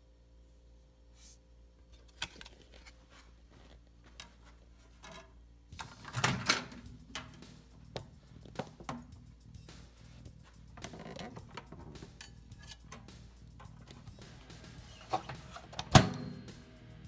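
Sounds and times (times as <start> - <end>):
microwave door latch clunk: 15.8 - 16.4.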